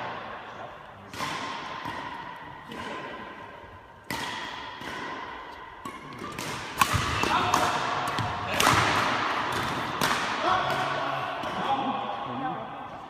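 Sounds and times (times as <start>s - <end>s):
rackets hitting shuttlecock: 0.1s - 12.0s.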